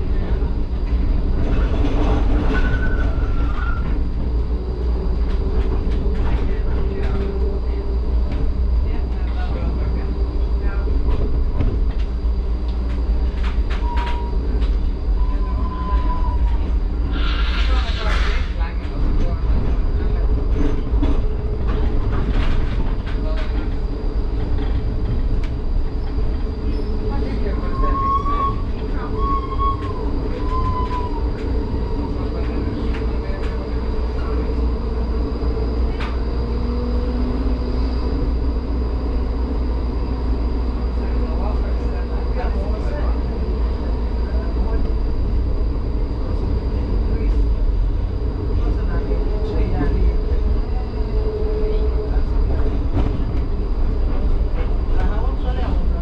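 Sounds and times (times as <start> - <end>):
tram rumbling on street track: 0.0 - 56.0
high wheel squeal: 27.6 - 31.4.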